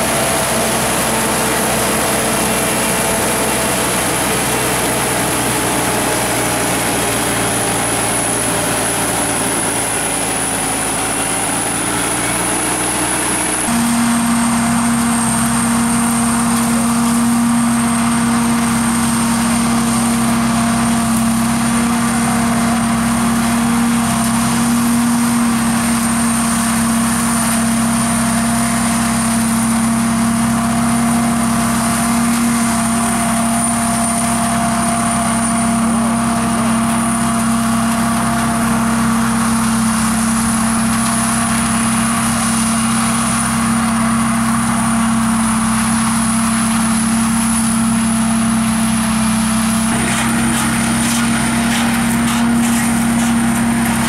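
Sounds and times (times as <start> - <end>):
combine harvester drone: 0.0 - 54.0
thin high whine: 11.2 - 20.3.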